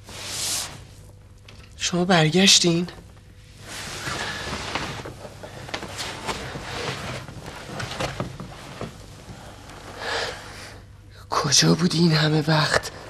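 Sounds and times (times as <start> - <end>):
fabric rustling: 3.0 - 10.0.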